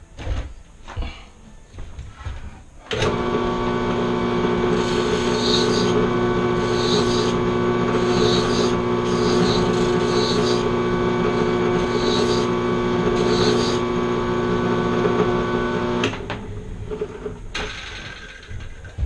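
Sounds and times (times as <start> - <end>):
machine motor humming: 2.9 - 17.2.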